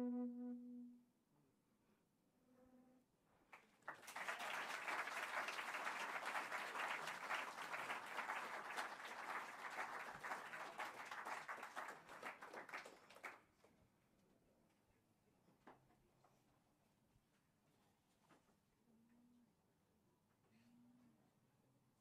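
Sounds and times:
audience applauding: 0:03.6 - 0:13.4.

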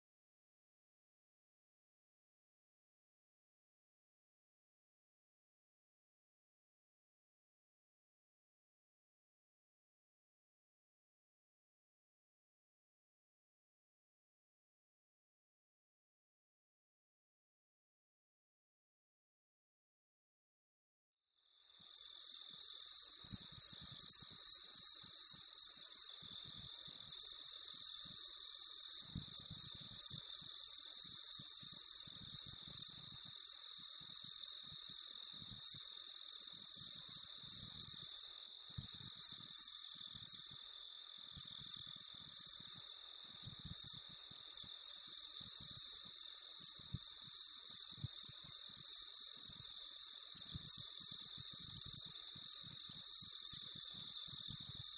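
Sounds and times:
background cricket chorus: 0:21.3 - 0:54.9
loud high cricket chirp: 0:21.6 - 0:54.9.

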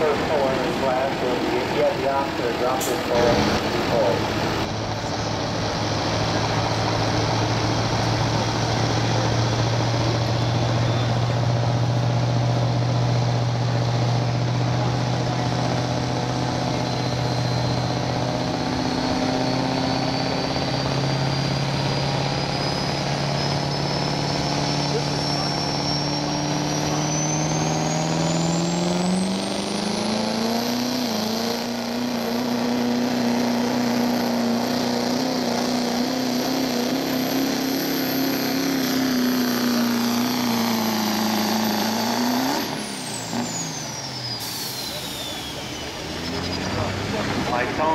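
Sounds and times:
diesel engine running hard: 0:00.0 - 0:47.9.

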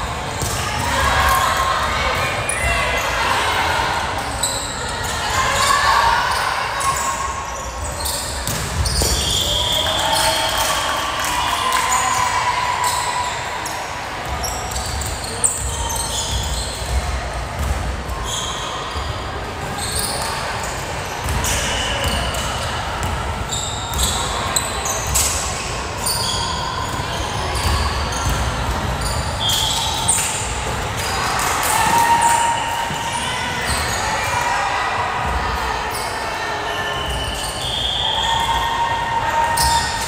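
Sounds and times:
sneakers squeaking on hardwood: 0:06.9 - 0:09.7, 0:26.0 - 0:30.4.

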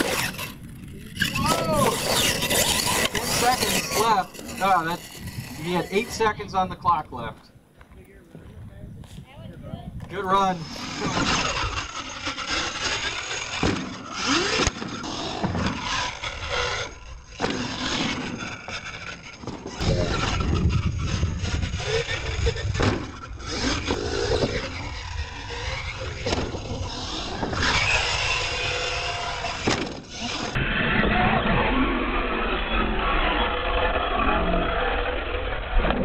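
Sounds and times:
toy truck motor whining: 0:00.0 - 0:06.5, 0:10.2 - 0:36.0
tyres scraping over dirt: 0:00.0 - 0:08.0, 0:10.0 - 0:36.0
thuds of landings: 0:10.8 - 0:16.7, 0:17.3 - 0:30.5.

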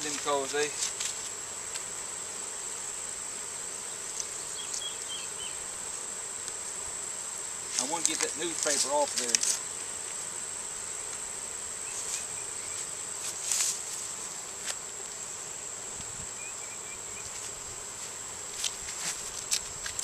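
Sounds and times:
rustles and light clicks: 0:00.0 - 0:01.9, 0:07.7 - 0:10.2, 0:17.2 - 0:20.0
high-pitched insect drone: 0:03.8 - 0:05.8, 0:16.0 - 0:20.0.

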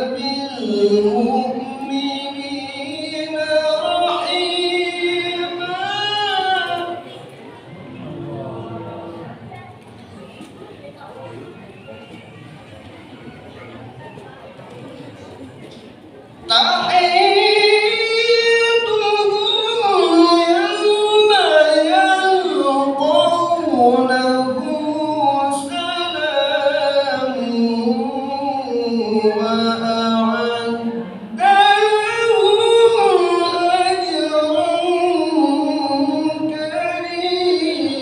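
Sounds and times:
man chanting into a microphone: 0:00.0 - 0:07.3, 0:16.4 - 0:38.0.

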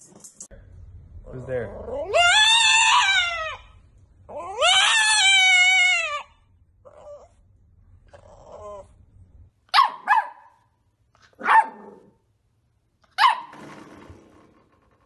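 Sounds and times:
puppy whining softly: 0:06.8 - 0:09.1
puppy barking: 0:09.7 - 0:12.2, 0:13.0 - 0:13.6.

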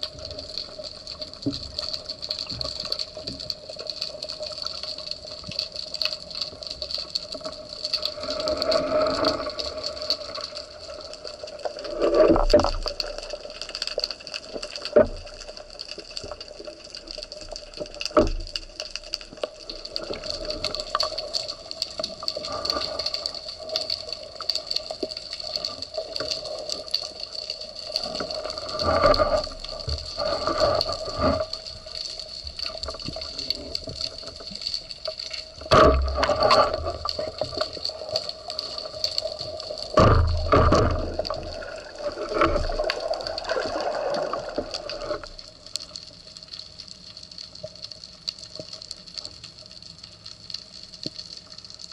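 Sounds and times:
underwater rushing hiss: 0:08.0 - 0:10.5, 0:35.9 - 0:45.4.

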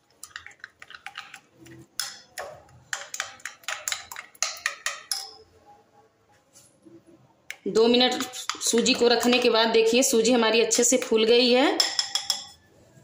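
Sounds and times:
spoon scraping glass bowl: 0:00.2 - 0:05.4, 0:08.0 - 0:09.5.

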